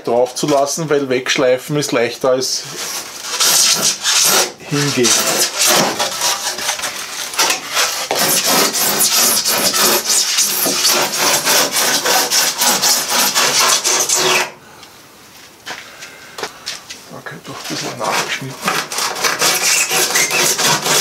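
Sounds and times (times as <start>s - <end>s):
hand saw rasping through foam: 2.6s - 14.6s, 17.5s - 21.0s.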